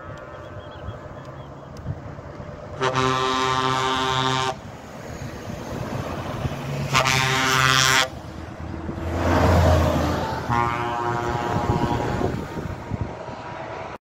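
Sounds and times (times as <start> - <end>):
truck diesel engine passing: 0.0 - 14.0
truck air horn blasts: 2.7 - 4.8, 6.8 - 8.2, 9.4 - 12.8.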